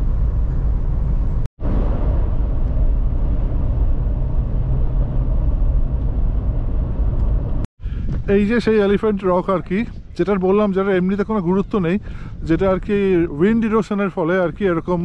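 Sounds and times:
car road and engine noise: 0.0 - 7.7.

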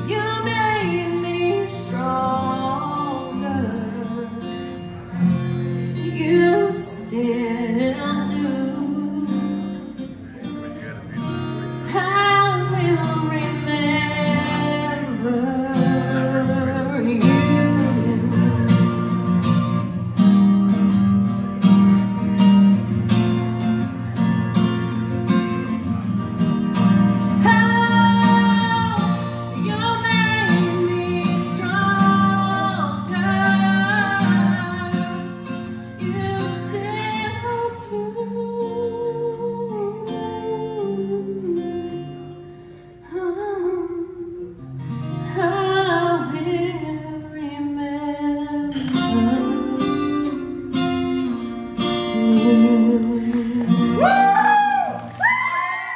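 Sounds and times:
woman singing: 0.0 - 4.9, 5.9 - 9.8, 11.8 - 19.3, 27.3 - 42.4, 43.0 - 55.9
acoustic guitar strumming: 0.0 - 55.9.

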